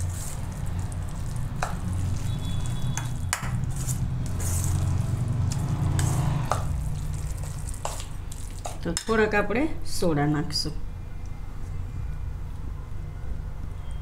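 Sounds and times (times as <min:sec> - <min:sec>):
spoon stirring wet batter: 0:00.0 - 0:09.3.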